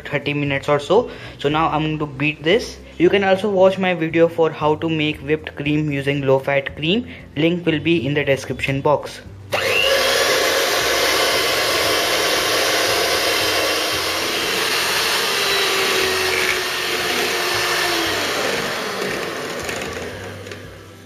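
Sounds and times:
electric hand mixer whirring: 9.5 - 21.0.

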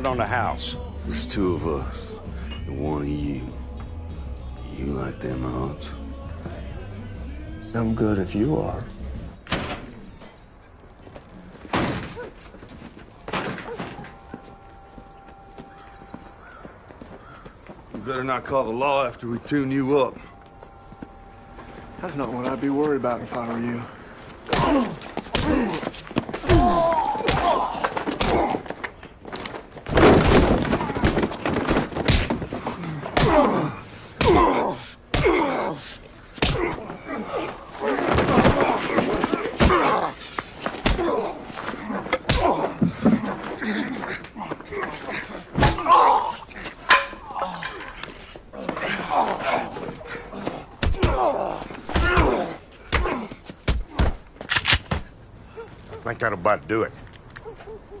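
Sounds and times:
punches thudding: 24.4 - 28.8, 29.8 - 35.7, 36.4 - 43.3, 45.5 - 46.2, 50.6 - 55.2
grunts and groans of pain: 24.4 - 29.4, 30.4 - 54.3.

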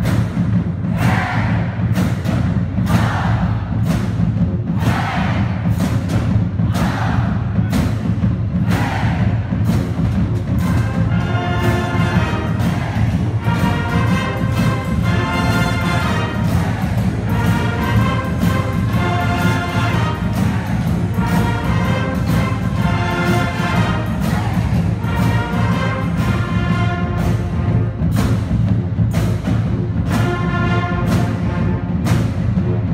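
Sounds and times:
brass and saxophone chords: 10.6 - 32.9.

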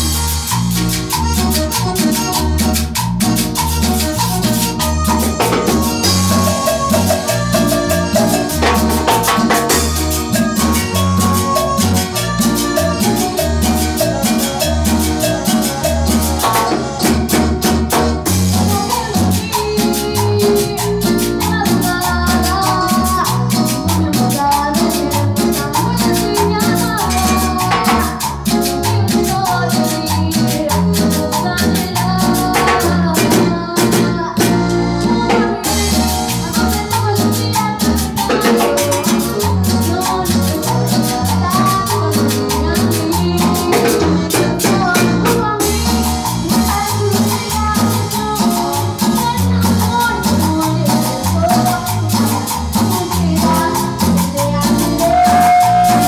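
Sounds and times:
latin band playing: 0.0 - 56.0
pulsing bass: 0.0 - 56.0
woman singing into microphone: 4.8 - 56.0.

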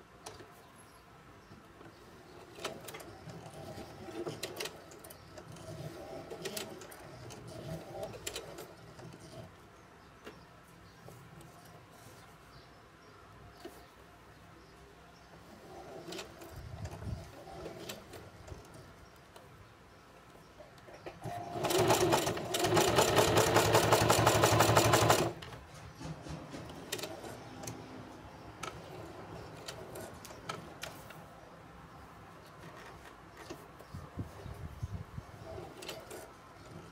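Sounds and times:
sewing machine stitching: 2.3 - 9.5, 21.2 - 27.8.

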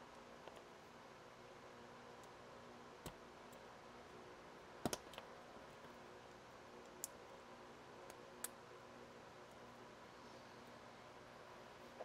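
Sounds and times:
faint steady hum: 0.0 - 12.0
small sharp plastic clicks: 4.8 - 5.3.

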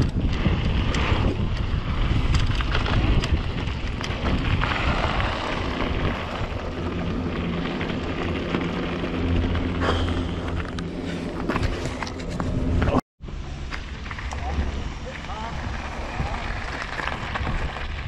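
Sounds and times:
wind buffeting microphone: 0.0 - 10.6, 14.4 - 18.0
bike knocks and rattles: 0.0 - 10.7
bike tyres on rough ground: 0.0 - 18.0.

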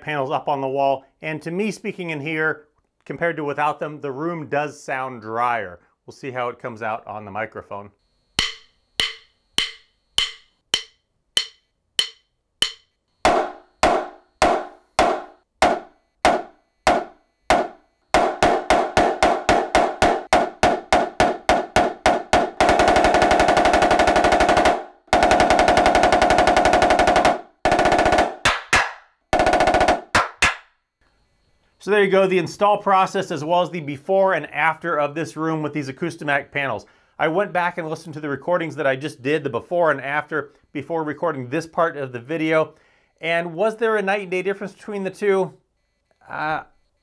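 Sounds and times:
snare drum strokes and rolls: 13.3 - 30.6.

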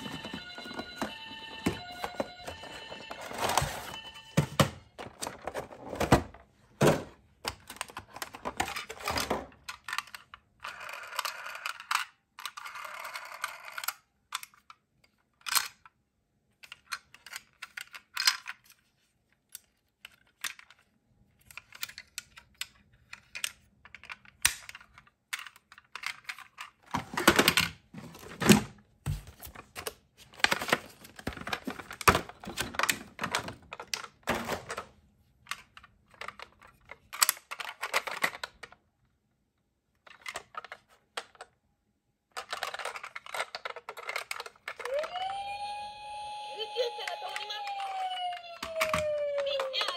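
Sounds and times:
toy cars clicking and clattering: 7.4 - 27.7, 35.5 - 38.8, 42.3 - 49.9
toys rattling against plastic bins: 23.0 - 28.8, 29.4 - 35.0, 42.3 - 45.0, 46.7 - 49.9.

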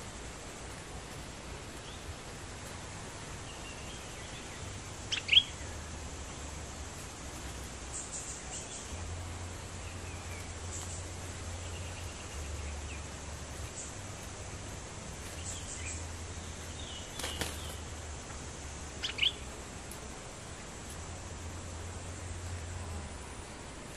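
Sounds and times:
insect drone: 0.0 - 23.9
low hum: 0.0 - 23.9
birds chirping and whistling: 3.5 - 5.7, 19.0 - 19.5.

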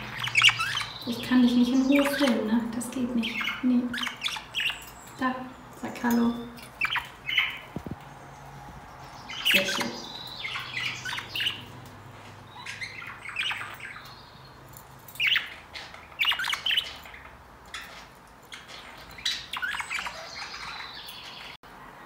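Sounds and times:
budgerigars chattering: 0.0 - 7.9, 8.9 - 14.4, 15.2 - 21.6.

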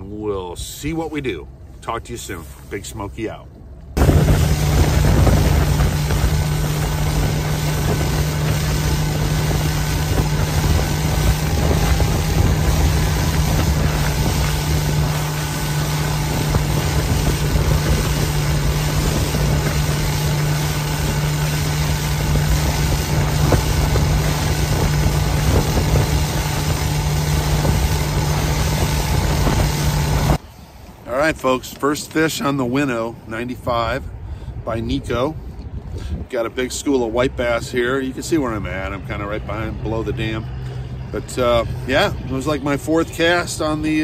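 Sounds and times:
rushing wind and water: 0.0 - 44.0
outboard motor running: 3.5 - 31.0.

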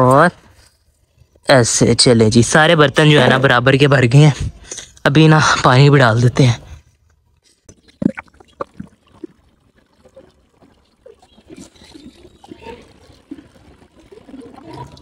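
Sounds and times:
water pouring into a saucer: 7.9 - 15.0.

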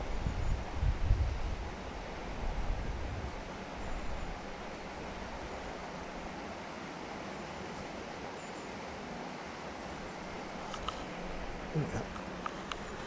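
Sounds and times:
wind gust buffeting microphone: 0.0 - 3.5
wind: 0.0 - 13.0.

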